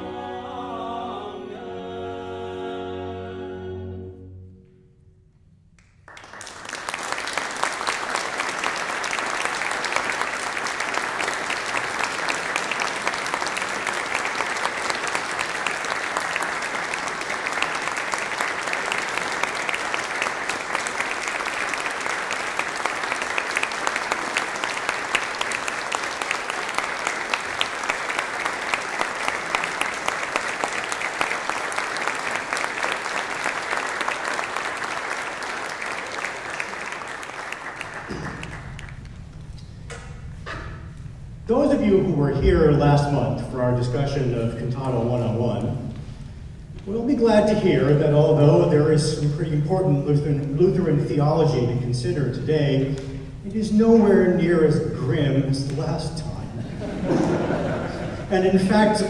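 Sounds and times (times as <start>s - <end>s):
choir chord with strings and organ: 0.0s - 5.2s
audience applause: 6.0s - 39.3s, 56.8s - 59.0s.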